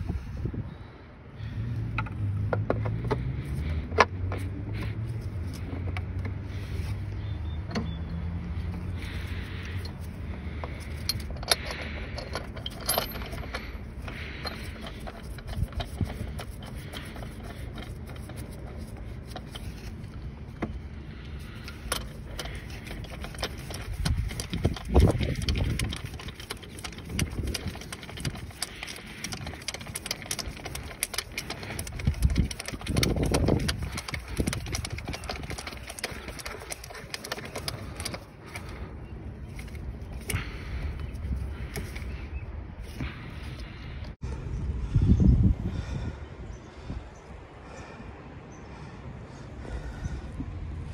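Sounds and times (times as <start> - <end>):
dull rumble from handling: 0.0 - 50.9
metal tools clinking: 7.6 - 42.1.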